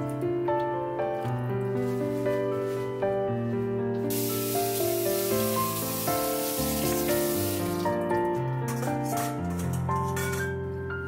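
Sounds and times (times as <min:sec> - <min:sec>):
background music: 0:00.0 - 0:11.0
kitchen tap running: 0:04.1 - 0:08.1.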